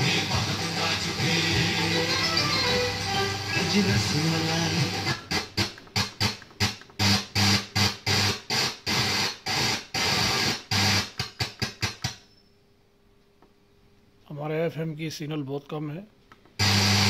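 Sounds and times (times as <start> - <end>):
radio station music: 0.0 - 8.2
radio static bursts: 3.4 - 12.0.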